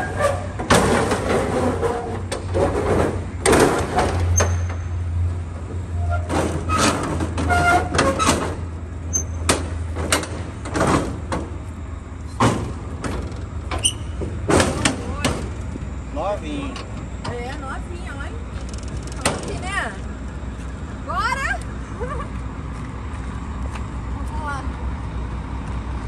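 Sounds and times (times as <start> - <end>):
clatters at truck rear doors: 0.0 - 15.8
low engine hum: 0.0 - 26.0.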